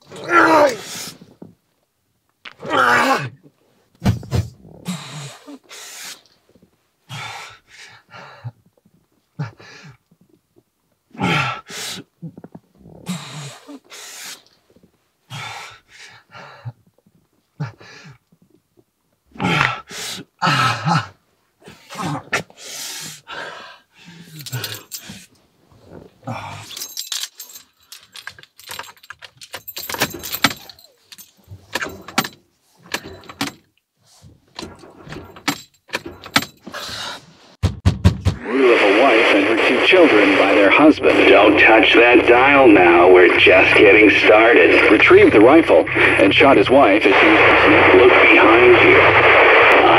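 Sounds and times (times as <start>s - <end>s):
metallic jangling and clattering: 24.4s - 25.3s, 26.7s - 33.7s, 34.5s - 36.7s.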